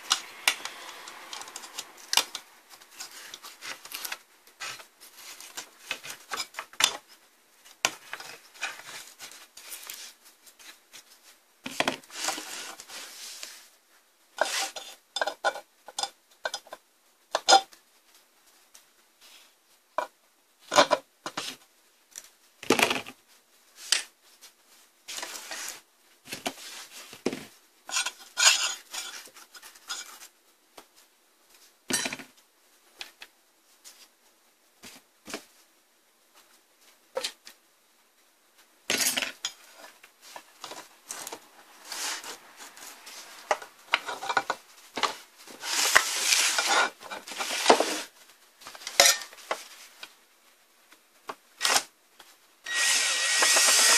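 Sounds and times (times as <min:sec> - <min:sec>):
metal tools clinking and scraping: 0:27.9 - 0:29.2, 0:48.9 - 0:49.4.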